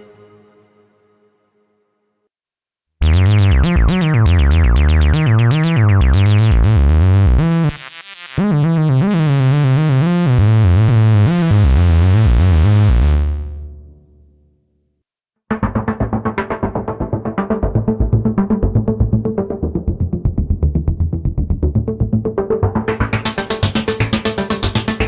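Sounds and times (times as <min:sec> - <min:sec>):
synthesizer arpeggio: 0:03.0 - 0:07.8, 0:15.7 - 0:25.0
stepping synth bass line: 0:03.0 - 0:13.7, 0:15.6 - 0:25.0.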